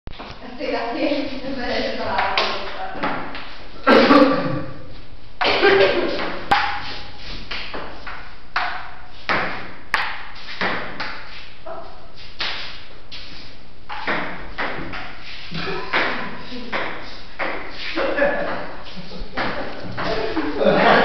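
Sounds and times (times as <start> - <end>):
ping pong ball clicking off paddles: 7.5 - 11.2, 13.9 - 15.2
ball bouncing on table: 13.9 - 15.1.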